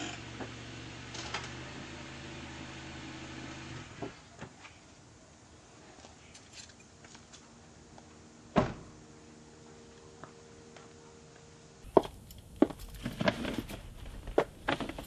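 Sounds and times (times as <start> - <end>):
car door slamming: 8.6 - 8.9.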